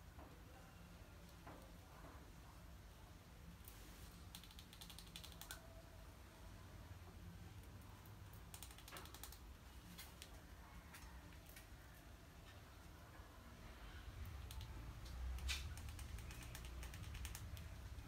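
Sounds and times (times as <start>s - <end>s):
rat gnawing clicks: 4.2s - 5.6s, 7.6s - 10.4s, 14.2s - 18.0s.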